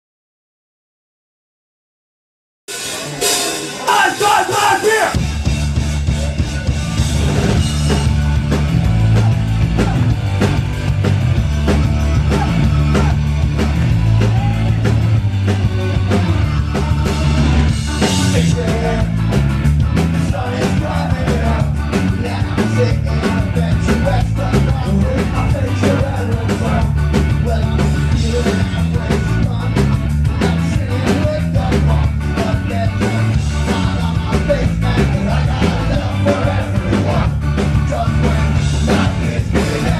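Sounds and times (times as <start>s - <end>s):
drums: 2.7s - 39.9s
heavy bass line: 2.8s - 39.9s
electric guitar: 5.1s - 39.9s
person singing: 20.2s - 39.9s.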